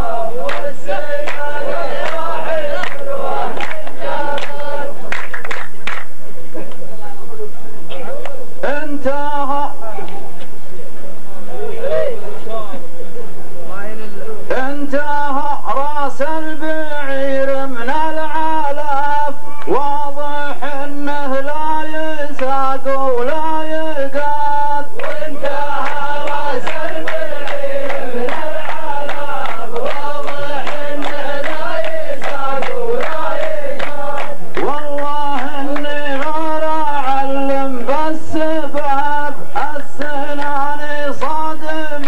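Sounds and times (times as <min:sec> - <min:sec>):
men chanting together: 0:00.0 - 0:05.2, 0:14.5 - 0:42.0.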